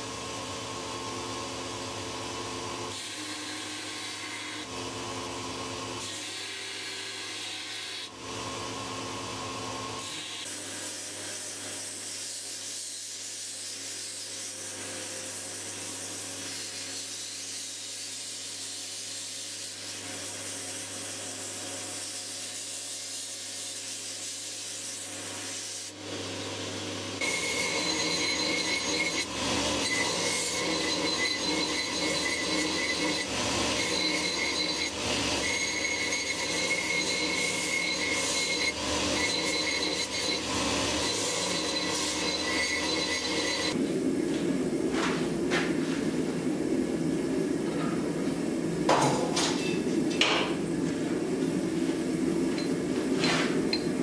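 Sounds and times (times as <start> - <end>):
belt grinder grinding steel: 25.0 - 43.8
high steady squeal: 27.2 - 43.8.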